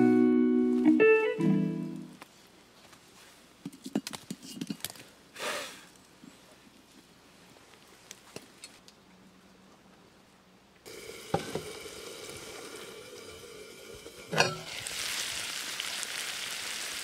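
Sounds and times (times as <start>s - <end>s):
cast iron pan clinking on grate: 14.2s - 14.8s.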